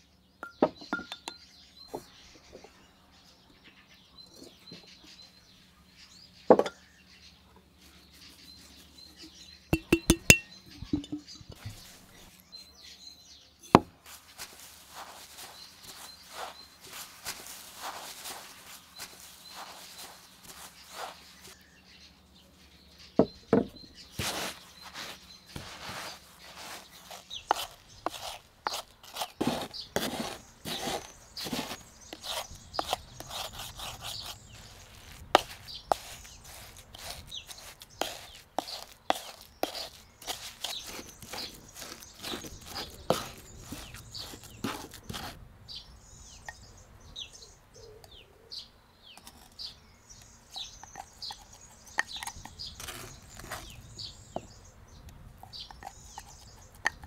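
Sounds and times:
birds chirping: 0.0s - 57.0s
wooden pestle pounding: 9.8s - 11.8s.

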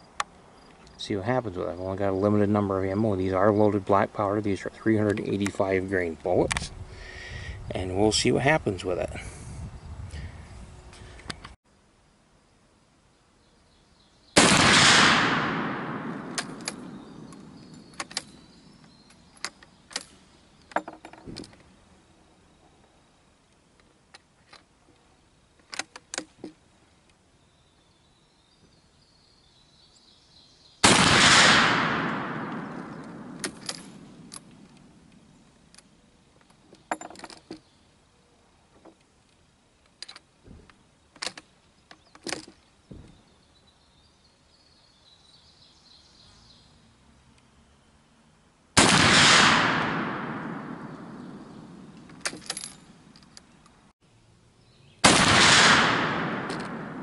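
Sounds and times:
rifle shots: 14.4s - 18.1s, 30.8s - 34.4s, 48.8s - 52.7s, 55.0s - 57.0s.

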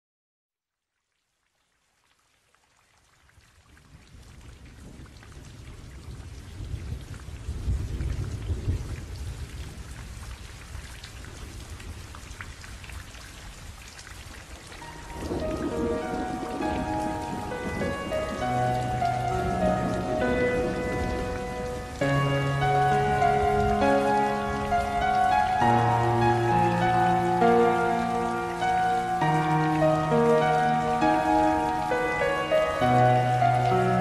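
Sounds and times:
steady rain: 0.9s - 34.0s
rolling thunder rumble: 4.6s - 12.8s, 14.8s - 34.0s
music: 14.8s - 34.0s.

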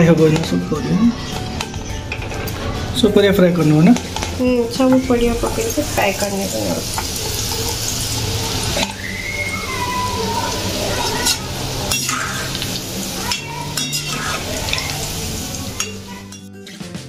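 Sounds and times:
potatoes sizzling in hot oil: 2.9s - 16.4s.

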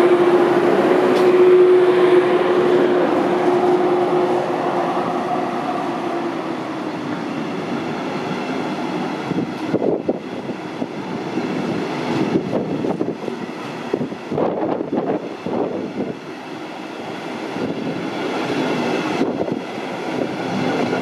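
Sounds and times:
electric locomotive hum: 0.0s - 21.0s
train wheels rumbling and clacking: 0.0s - 21.0s.

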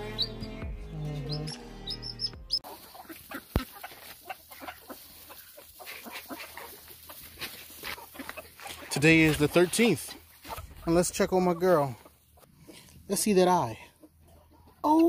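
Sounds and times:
background music: 0.0s - 2.7s
young bird peeping: 0.0s - 13.0s
ducks giving soft calls: 1.3s - 13.0s.

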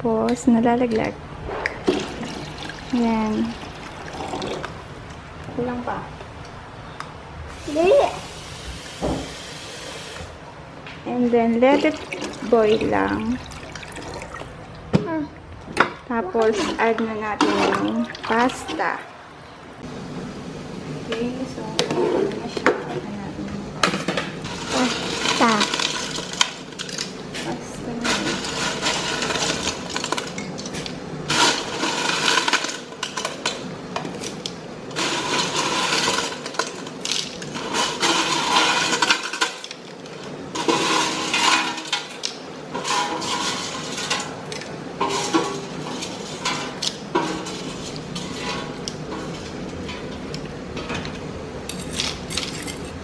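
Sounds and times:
dry spaghetti clattering in pot: 23.8s - 33.7s, 34.4s - 52.9s.

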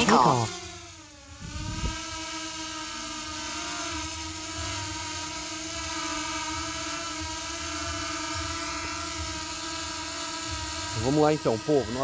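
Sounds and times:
drone propellers whirring: 0.0s - 12.0s.

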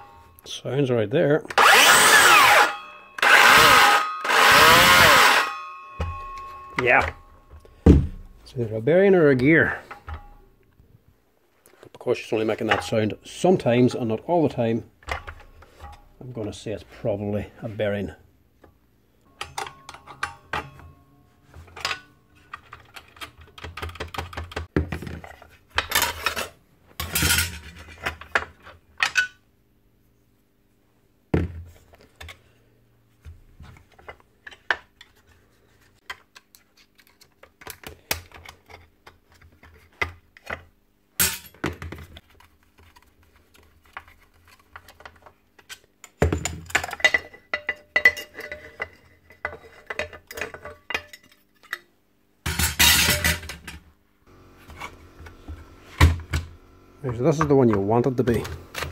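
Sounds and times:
metal tools clinking on bench: 5.4s - 7.8s, 19.3s - 21.0s, 46.4s - 51.9s.

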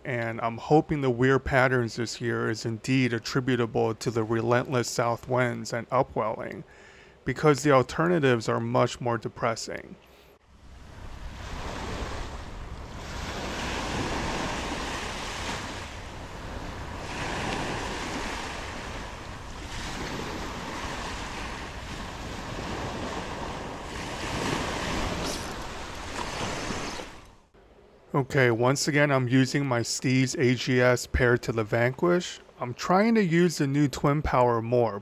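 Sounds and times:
wind buffeting microphone: 10.5s - 27.3s
surf waves breaking on beach: 10.5s - 27.4s.

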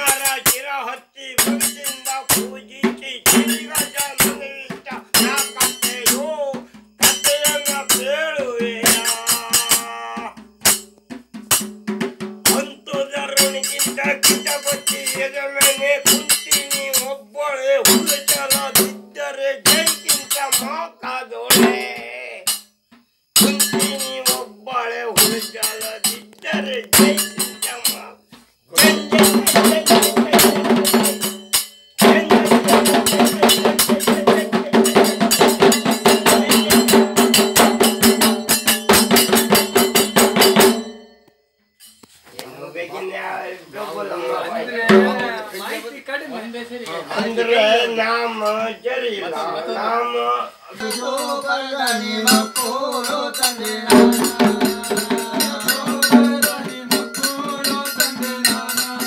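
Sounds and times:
clay-pot drums: 0.0s - 43.1s, 44.2s - 45.8s, 46.9s - 48.0s, 50.7s - 59.0s
group folk singing: 7.0s - 10.4s, 32.0s - 37.2s, 43.7s - 45.6s, 46.9s - 59.0s.

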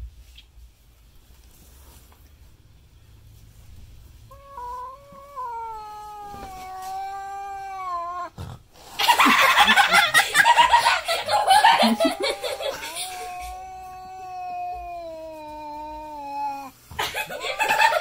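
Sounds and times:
cat screeching harshly: 4.3s - 8.4s, 11.4s - 16.7s
cat yowling: 4.3s - 8.4s, 11.2s - 16.8s.

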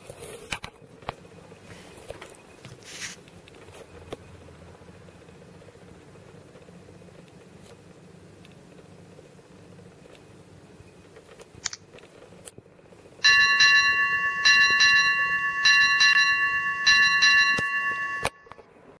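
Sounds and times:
ship's bell double strikes: 13.2s - 18.7s.

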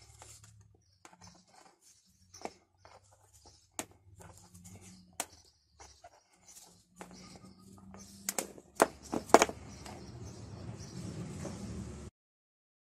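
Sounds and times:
faint scratchy rustling: 0.0s - 10.0s.

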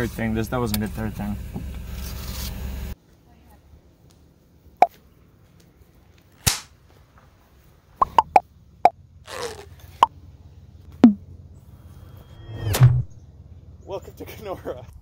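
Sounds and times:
pitched pop sound effects: 8.0s - 8.4s.

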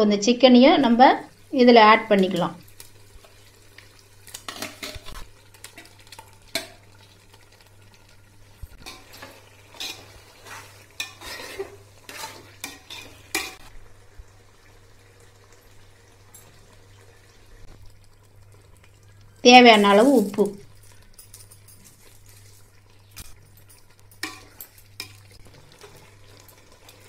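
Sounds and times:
metal spatula scraping a pot: 8.8s - 13.6s.

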